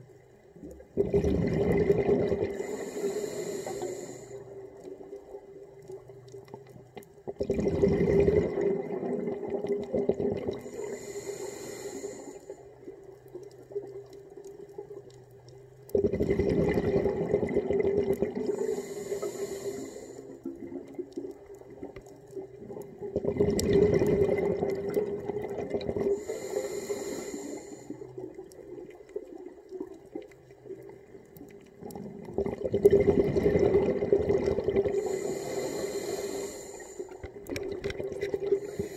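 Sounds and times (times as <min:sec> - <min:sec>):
exhaled bubbles rushing: 0:00.9 - 0:02.7, 0:07.3 - 0:10.7, 0:15.9 - 0:18.6, 0:20.4 - 0:26.2, 0:28.2 - 0:35.1, 0:37.2 - 0:38.8
regulator inhale hiss: 0:02.5 - 0:04.6, 0:10.6 - 0:12.8, 0:18.5 - 0:20.5, 0:26.1 - 0:28.2, 0:34.9 - 0:37.4, 0:38.6 - 0:38.9.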